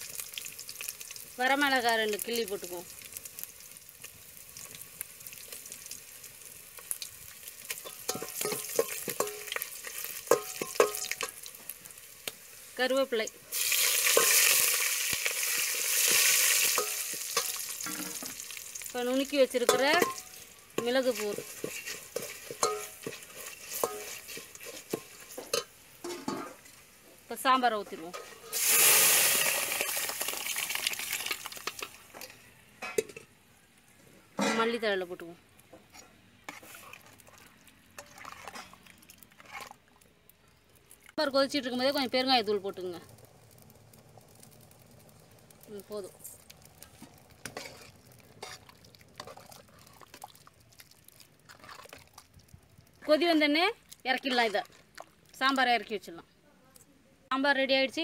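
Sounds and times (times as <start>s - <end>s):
garlic and chillies sizzling in oil: 0.0s - 56.4s, 57.3s - 58.0s
metal ladle scraping and clinking pot: 7.7s - 11.4s, 16.1s - 18.4s, 19.6s - 26.7s, 27.9s - 28.8s, 35.9s - 39.8s, 47.0s - 50.2s
metal clinks against pot: 7.8s - 9.6s, 10.3s - 11.4s, 19.6s - 21.0s, 21.7s - 24.2s.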